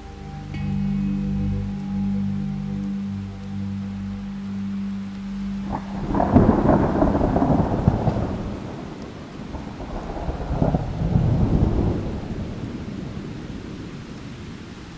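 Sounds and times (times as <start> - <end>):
rain falling: 0.0 - 14.9
thunder rumbling: 4.4 - 14.9.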